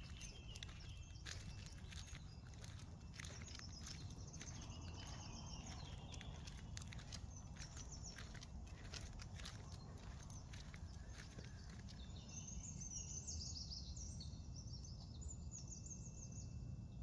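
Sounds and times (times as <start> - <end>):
footsteps and dog claws on brick: 0.0 - 12.2
faint bird chirps: 0.0 - 16.6.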